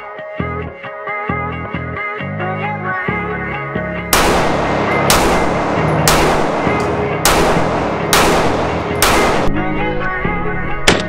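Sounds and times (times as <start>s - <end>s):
background music: 0.0s - 11.0s
pistol shots indoors: 4.1s - 9.7s.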